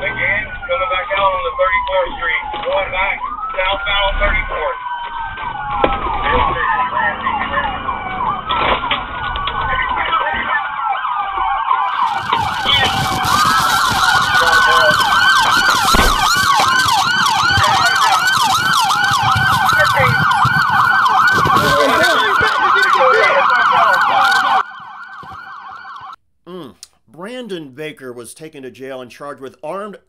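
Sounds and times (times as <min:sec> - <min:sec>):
police sirens wailing and yelping: 0:00.0 - 0:26.2.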